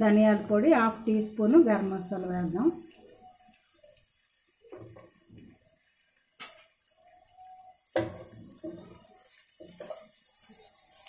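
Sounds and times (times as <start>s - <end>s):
spatula scraping frying pan: 8.2s - 11.0s.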